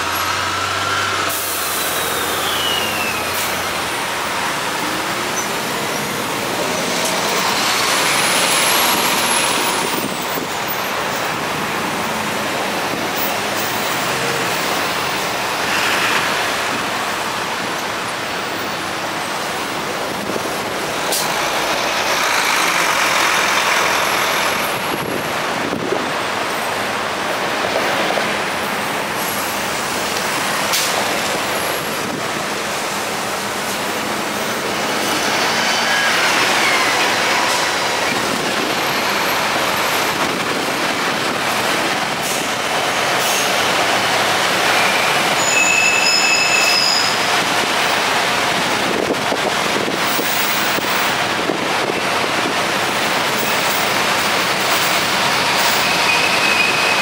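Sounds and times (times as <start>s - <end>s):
slow traffic engine and tyre noise: 0.0s - 57.0s
brief high squeal: 1.7s - 3.5s, 45.4s - 47.2s, 55.8s - 57.0s.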